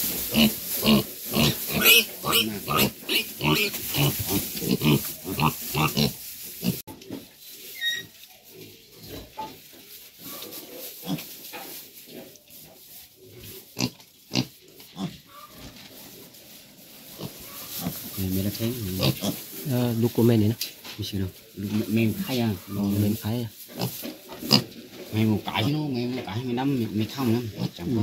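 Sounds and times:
piglets grunting: 0.3 - 6.8.

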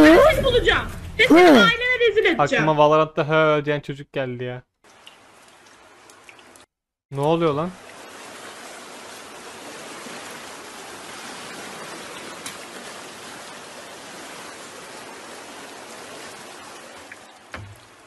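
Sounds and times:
floodwater rushing: 4.8 - 18.0.

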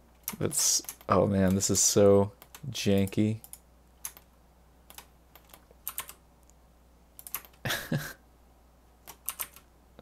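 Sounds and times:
keyboard keys tapping: 9.1 - 9.6.

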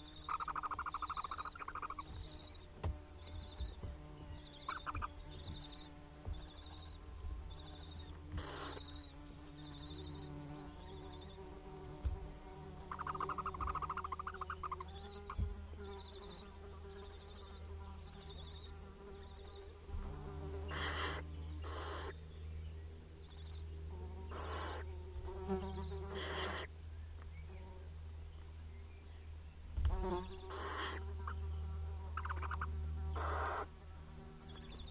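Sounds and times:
rapid rattling call: 0.0 - 2.4, 4.6 - 5.7, 12.9 - 15.4, 32.2 - 33.7
low hum: 0.0 - 34.9.

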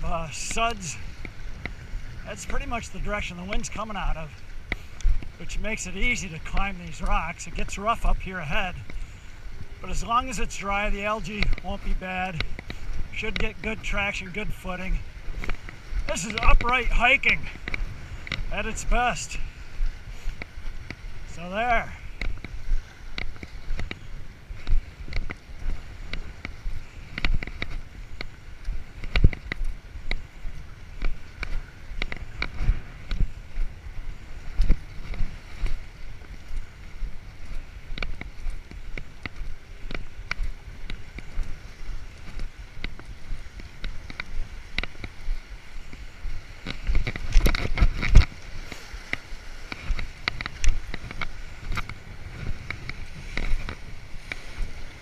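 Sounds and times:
water washing against rocks: 0.0 - 1.4, 9.8 - 20.4
wind buffeting microphone: 0.0 - 55.0
footsteps on concrete and stone: 9.9 - 55.0
footsteps scuffing on boulders: 46.6 - 55.0.

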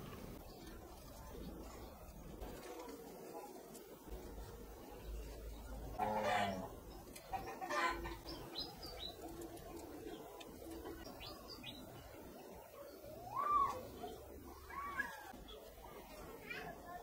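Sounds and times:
birds calling: 0.0 - 16.0.

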